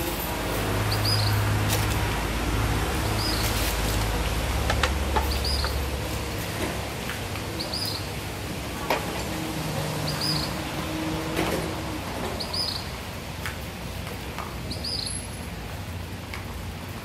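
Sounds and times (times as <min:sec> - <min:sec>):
food wrapping rustling: 0:01.6 - 0:02.2, 0:03.1 - 0:04.2.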